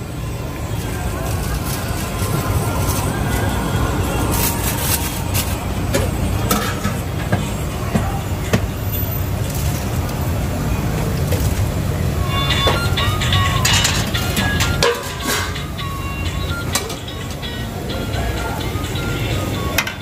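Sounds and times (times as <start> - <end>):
street traffic rumble: 0.0 - 20.0
ladle clinking steel pots: 4.4 - 7.5, 12.6 - 15.8.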